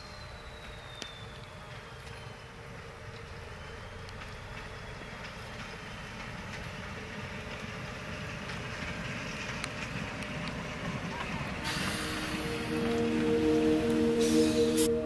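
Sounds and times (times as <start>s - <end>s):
train wheels clicking on rails: 0.0s - 14.9s
diesel locomotive engine running: 0.0s - 15.0s.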